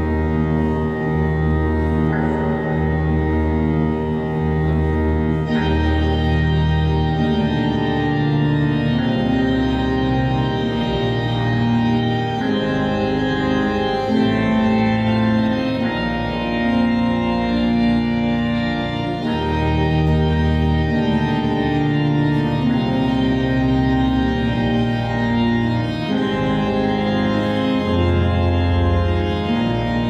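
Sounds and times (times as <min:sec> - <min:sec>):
pipe organ chords: 0:00.0 - 0:30.0.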